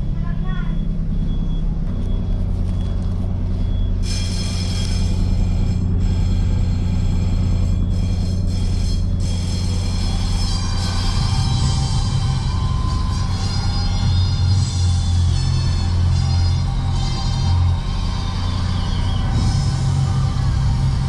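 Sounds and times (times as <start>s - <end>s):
ferry engines rumbling: 0.0s - 21.0s
high-pitched hum: 0.0s - 21.0s.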